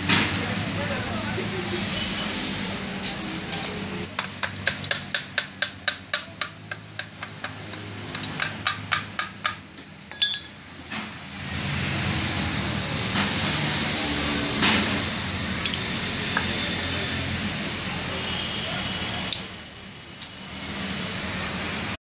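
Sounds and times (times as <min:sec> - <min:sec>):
hammer tapping on metal: 0:04.1 - 0:10.6.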